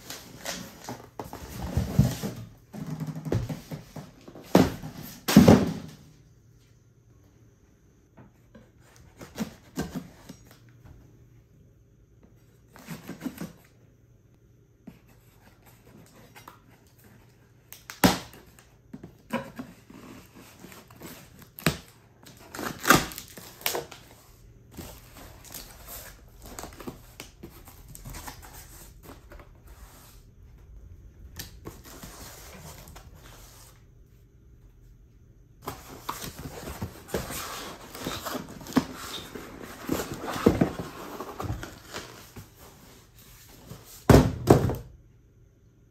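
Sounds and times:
cardboard scraping and rustling: 0.0 - 5.7, 35.6 - 44.1
cardboard box knocks and thumps: 44.0 - 44.9.

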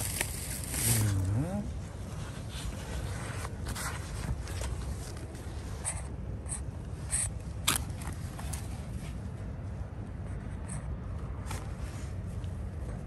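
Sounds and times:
fur rustling against microphone: 0.0 - 5.8
low rumble of handling noise: 0.0 - 13.0.

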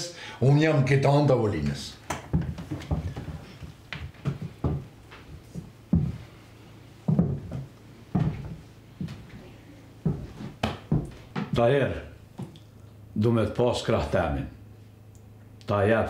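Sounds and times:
footsteps on wooden floor: 2.2 - 11.7.

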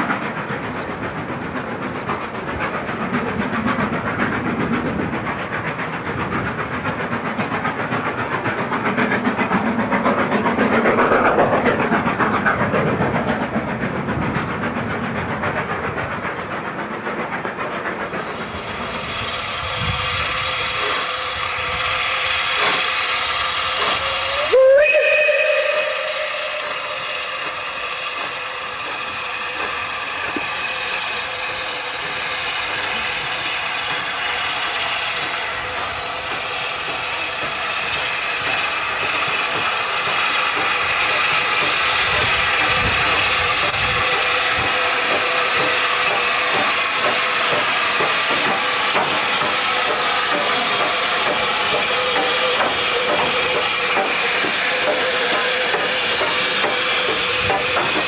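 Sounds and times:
steam hissing: 0.0 - 58.0
steam locomotive exhaust rushing: 0.0 - 58.0
steam locomotive whistle: 21.6 - 28.9.

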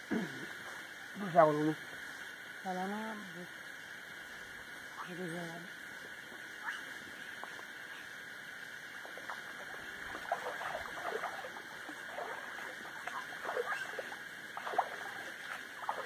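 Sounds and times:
river water splashing: 6.3 - 16.0.

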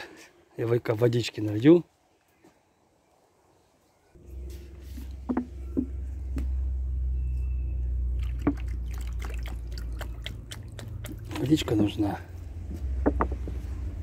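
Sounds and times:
low engine hum: 4.2 - 14.0
knocks: 5.3 - 6.0, 12.9 - 13.6.

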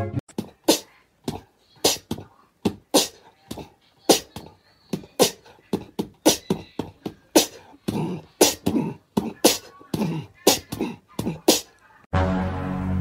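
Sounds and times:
cat hissing and spitting: 0.4 - 2.2, 2.9 - 3.2, 7.4 - 11.7.

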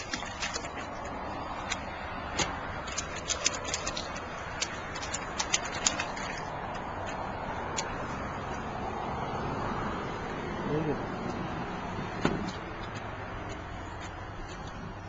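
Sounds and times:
hands splashing water: 0.0 - 8.0.

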